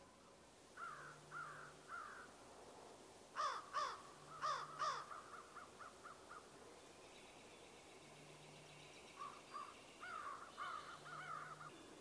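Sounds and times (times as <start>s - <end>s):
crow cawing: 0.8s - 2.3s, 3.4s - 6.4s, 10.0s - 11.7s.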